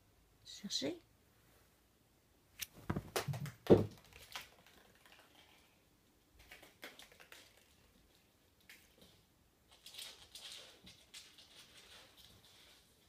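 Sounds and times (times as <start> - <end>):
cat scrambling on hardwood floor: 2.7 - 5.2.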